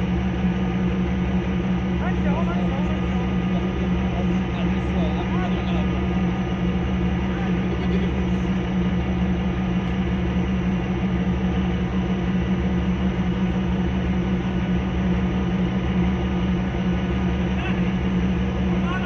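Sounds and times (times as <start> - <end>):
boat engine drone: 0.0 - 19.0.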